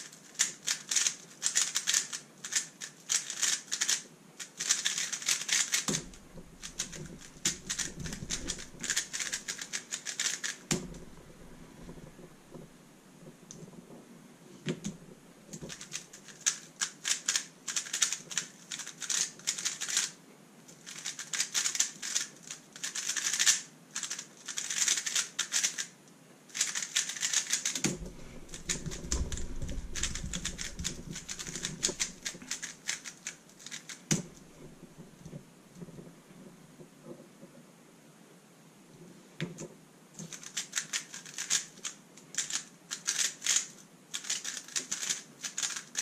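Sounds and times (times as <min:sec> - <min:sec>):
rapid plastic puzzle cube clicks: 0:00.0 - 0:12.2, 0:14.7 - 0:35.3, 0:40.2 - 0:46.0
low rumble: 0:10.7 - 0:14.0, 0:27.9 - 0:32.5.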